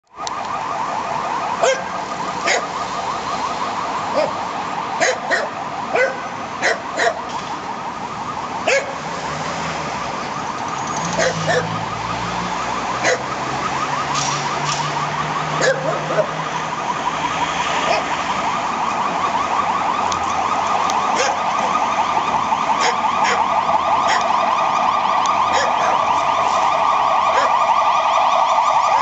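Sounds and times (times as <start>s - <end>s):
ambulance siren yelping: 0.0s - 29.0s
dog barking: 1.6s - 2.7s, 4.1s - 4.4s, 5.0s - 7.2s, 8.7s - 9.0s, 11.2s - 11.8s, 13.0s - 13.3s, 15.6s - 16.4s, 17.9s - 18.1s, 21.2s - 21.4s, 22.8s - 23.5s, 24.1s - 24.3s, 25.5s - 26.0s, 27.3s - 27.6s.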